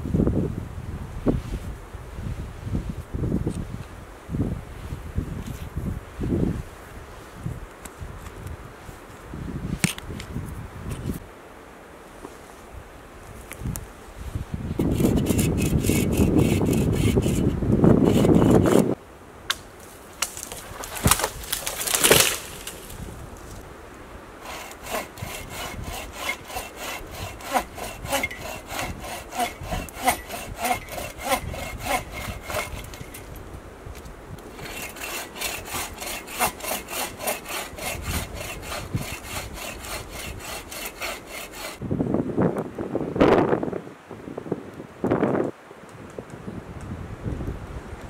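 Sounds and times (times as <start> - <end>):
hand saw cutting branch: 14.8 - 19.0, 20.2 - 23.0, 24.4 - 33.4, 34.4 - 41.8.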